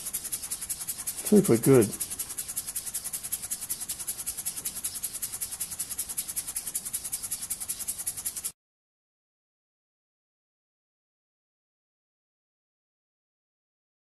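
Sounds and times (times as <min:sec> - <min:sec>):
model steam engine chuffing: 0:00.0 - 0:08.5.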